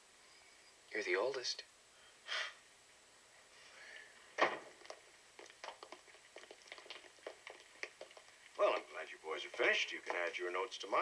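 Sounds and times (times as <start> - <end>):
thud: 4.4 - 4.8
footsteps on hard floor: 4.5 - 8.9, 9.6 - 10.4.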